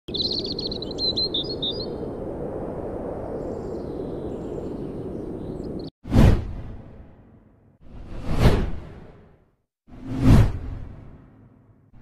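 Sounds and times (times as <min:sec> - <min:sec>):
bird chirps: 0:00.1 - 0:02.0.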